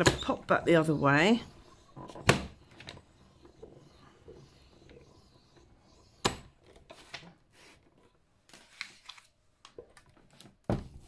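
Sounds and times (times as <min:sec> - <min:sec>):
paper rustling: 0:08.5 - 0:09.4.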